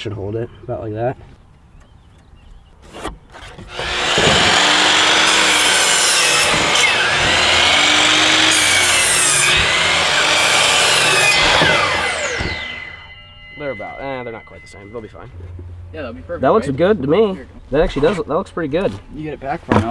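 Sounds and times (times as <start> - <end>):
miter saw cutting wood: 2.9 - 15.0
saw motor winding down: 3.7 - 15.0.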